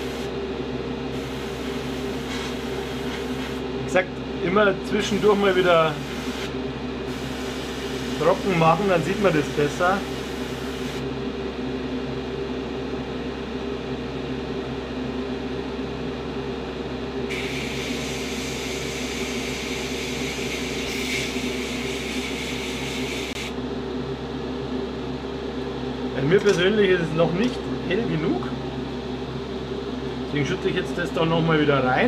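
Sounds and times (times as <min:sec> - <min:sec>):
airbrush hissing air: 0:00.0 - 0:00.3, 0:01.1 - 0:03.6, 0:05.0 - 0:06.5, 0:07.1 - 0:11.0, 0:17.3 - 0:23.5
motor hum: 0:00.0 - 0:12.8.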